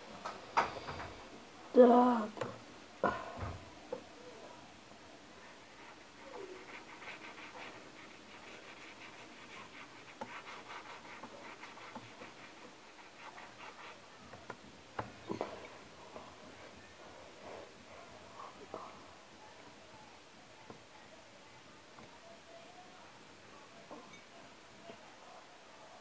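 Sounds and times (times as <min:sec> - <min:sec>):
drawing tool scratching on paper: 0:05.8 - 0:14.0.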